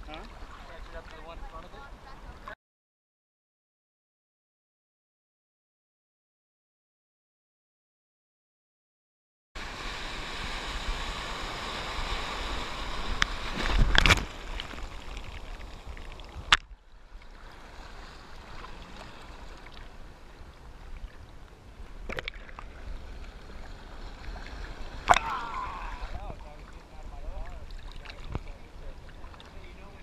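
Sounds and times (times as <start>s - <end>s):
water sloshing and splashing: 12.9s - 21.3s, 22.0s - 29.6s.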